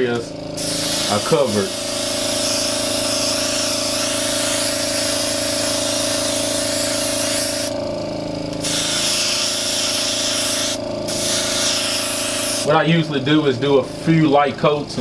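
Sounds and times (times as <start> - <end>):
steady hum: 0.0 - 15.0
airbrush hissing: 0.6 - 7.8, 8.6 - 12.7.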